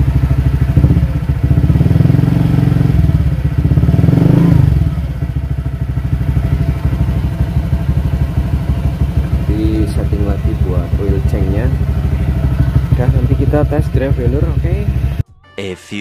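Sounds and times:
scooter engine idling: 0:00.0 - 0:15.2.

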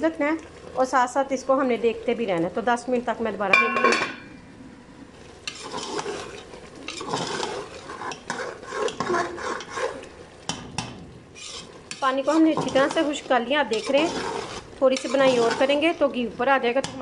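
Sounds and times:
light sizzle: 0:00.0 - 0:17.0
spoon scraping and clinking in pot: 0:05.4 - 0:10.1, 0:11.4 - 0:16.0.

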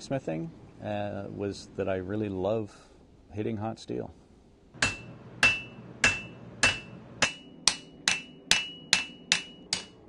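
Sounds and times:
hammer striking iron on anvil: 0:04.8 - 0:10.0.

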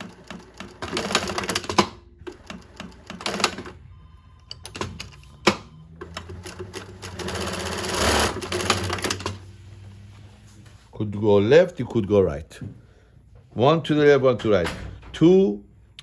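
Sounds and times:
sewing machine stitching denim: 0:00.0 - 0:03.8, 0:06.0 - 0:09.4.

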